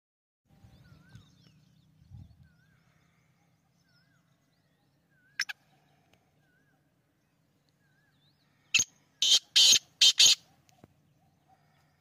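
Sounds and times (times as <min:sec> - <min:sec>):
wavy whistling birdsong: 0:00.5 - 0:12.0
harsh bird call: 0:08.0 - 0:10.5.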